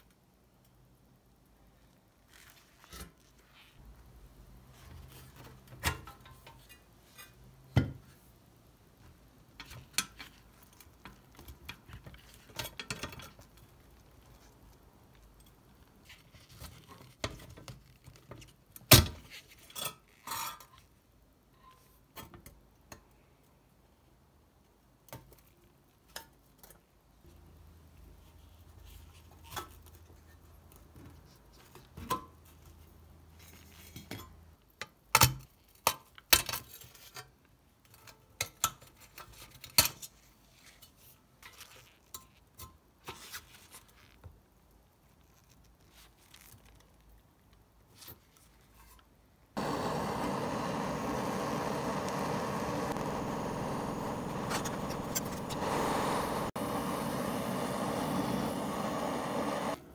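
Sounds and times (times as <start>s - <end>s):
screwdriver working sheet metal: 49.8s - 59.8s.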